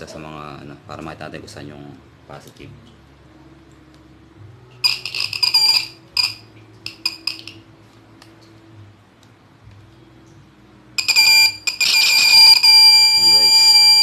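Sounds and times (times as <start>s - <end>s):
shrill electric buzzing: 11.0s - 14.0s.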